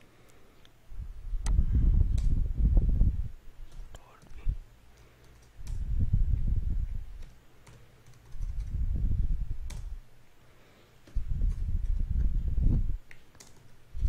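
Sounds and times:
computer keyboard typing: 4.9s - 5.8s, 7.2s - 8.8s, 13.3s - 13.7s.

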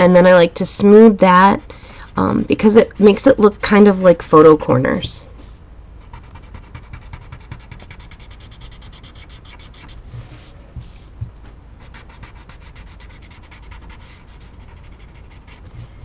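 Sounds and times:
blending stump rubbing on paper: 5.4s - 16.0s.

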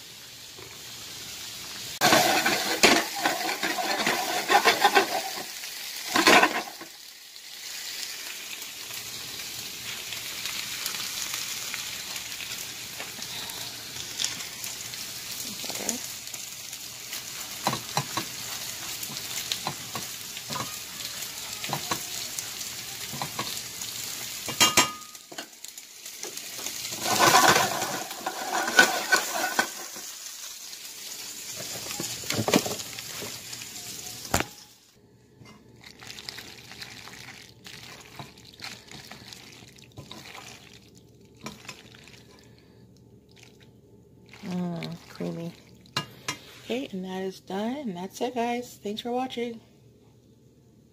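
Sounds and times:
steak sizzling in a frying pan: 0.0s - 34.9s
spatula stirring in metal saucepan: 2.0s - 5.4s, 26.9s - 29.9s.

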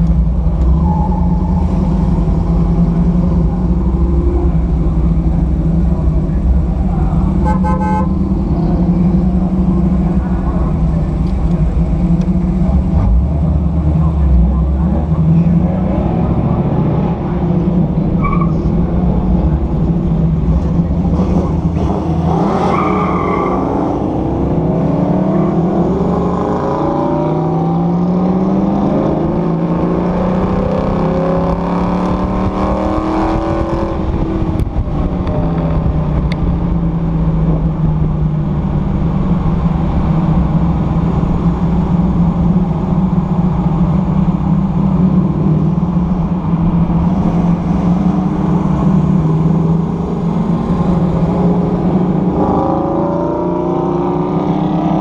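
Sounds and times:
car engine running: 0.0s - 22.3s
road noise: 0.0s - 55.0s.

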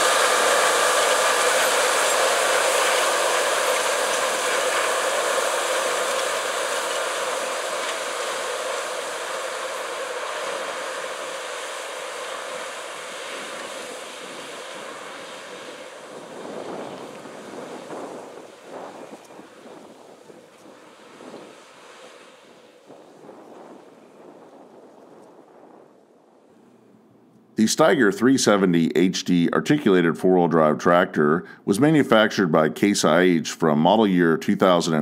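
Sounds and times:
diesel tractor working under load: 0.0s - 24.4s
wind gusts on microphone: 0.0s - 27.3s.

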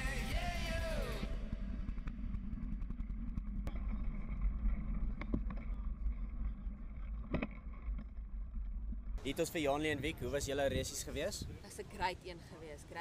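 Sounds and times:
riding noise and wind rumble: 9.2s - 13.0s.

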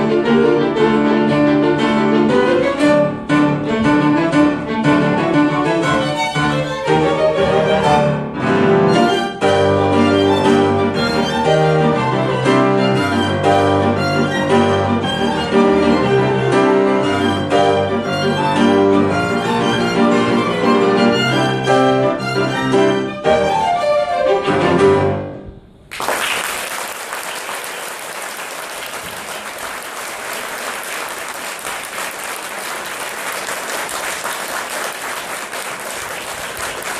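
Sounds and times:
violins and piano playing: 0.0s - 25.4s
audience applauding: 25.9s - 36.9s.

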